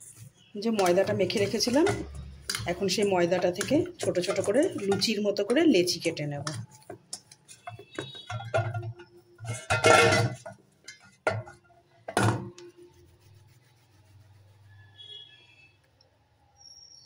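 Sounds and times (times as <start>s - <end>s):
dough knocking in steel bowl: 0.6s - 12.6s.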